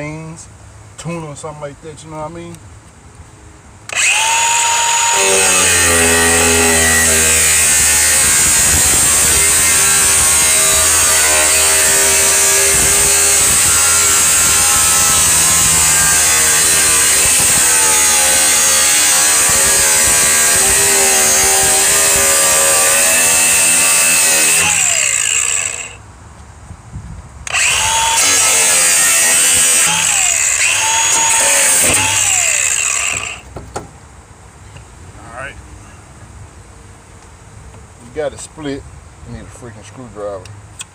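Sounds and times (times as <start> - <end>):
angle grinder cutting sheet metal: 3.9 - 26.0, 27.5 - 33.4.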